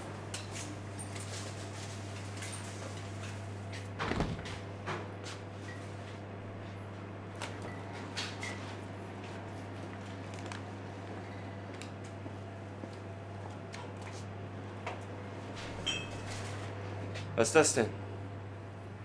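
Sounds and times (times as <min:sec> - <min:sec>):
fridge humming: 0:02.7 - 0:06.6
fridge door thump: 0:04.0 - 0:05.0.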